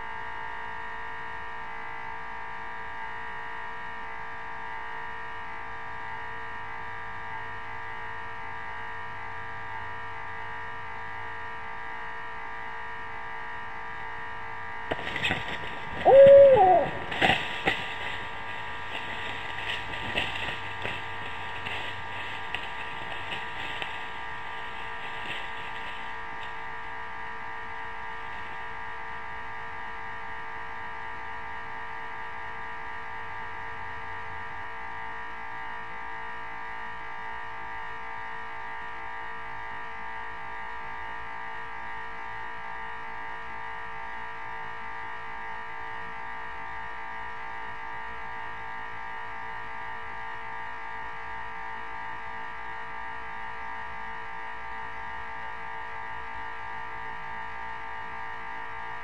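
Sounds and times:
electrical hum: 9.0 - 31.6
owl hooting: 15.2 - 21.0
clicks and scratches: 17.0 - 26.5.

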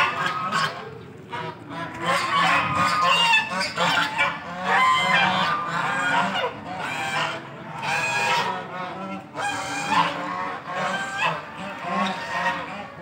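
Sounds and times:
geese honking: 0.0 - 13.0.

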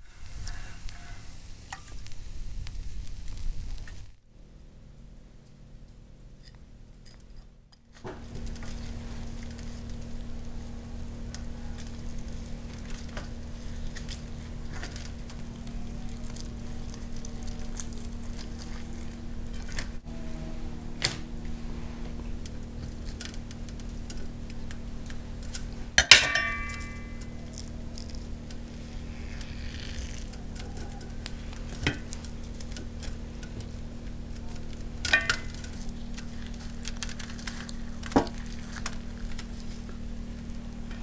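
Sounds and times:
steady low hum: 0.0 - 41.0
wet handling of meat: 8.2 - 20.0
knife striking steel tray: 26.0 - 27.2.

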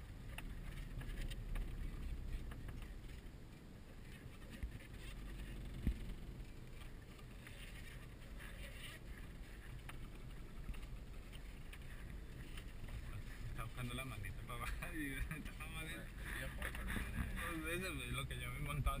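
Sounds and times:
engine and tyre rumble: 0.0 - 19.0
vehicle body knocking and clicking: 5.6 - 7.3.

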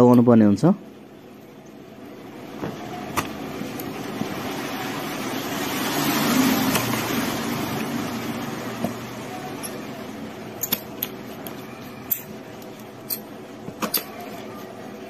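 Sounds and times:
passing vehicle: 4.4 - 9.6.

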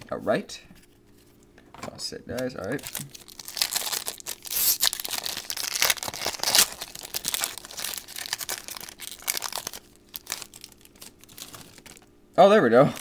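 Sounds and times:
foil wrapper tearing and crinkling: 2.7 - 12.1.

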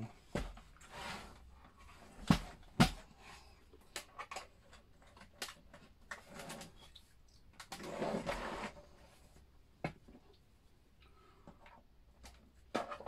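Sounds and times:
plastic case scraping on desk: 7.7 - 8.9.

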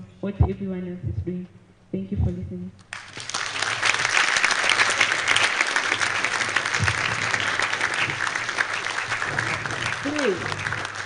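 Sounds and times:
audience applauding: 2.9 - 11.0.

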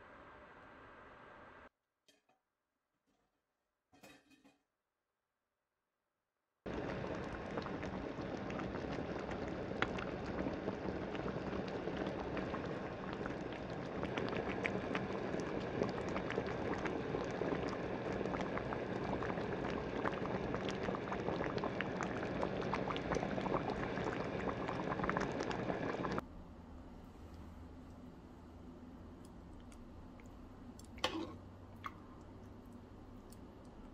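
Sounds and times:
food simmering and bubbling: 6.6 - 26.2, 27.1 - 33.9.

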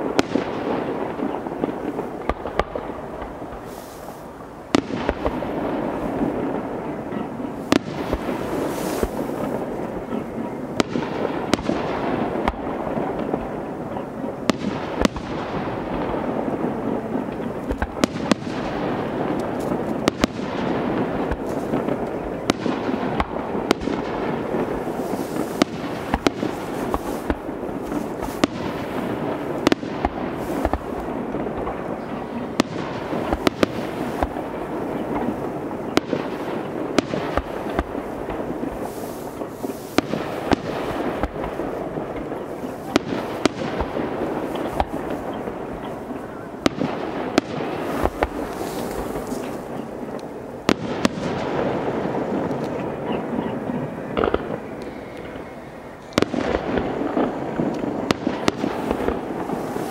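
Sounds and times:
steady background noise: 0.0 - 59.9
fireworks shells bursting: 21.3 - 46.1, 52.3 - 59.9.

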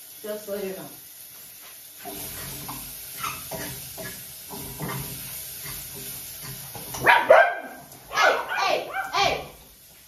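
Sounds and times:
steady hiss: 0.0 - 7.0
dogs barking: 7.0 - 9.6
dogs whining: 8.1 - 9.5.

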